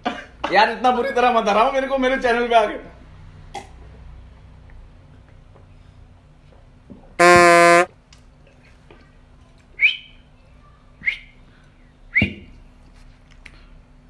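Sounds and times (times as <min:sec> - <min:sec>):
electronic buzzer tone: 0:07.2 - 0:07.9
short high chirps: 0:07.2 - 0:07.9.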